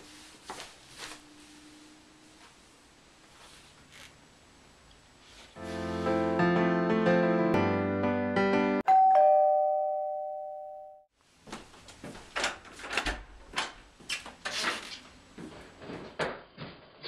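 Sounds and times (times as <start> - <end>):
piano music: 5.6 - 11.1
two-tone doorbell chime: 8.8 - 11.1.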